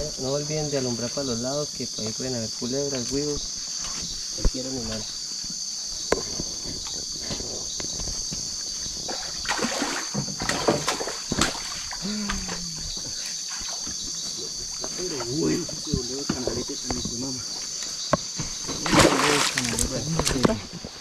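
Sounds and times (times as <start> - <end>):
crickets and insects chirping: 0.0 - 21.0
water splashing from fish: 9.1 - 12.6, 18.8 - 20.5.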